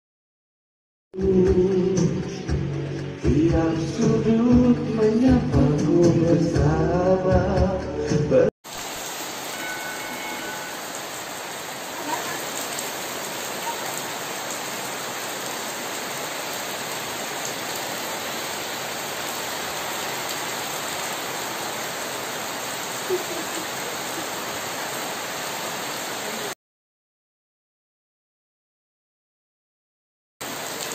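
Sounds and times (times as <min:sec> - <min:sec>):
heavy rain on concrete: 0:08.6 - 0:26.6, 0:30.4 - 0:30.9.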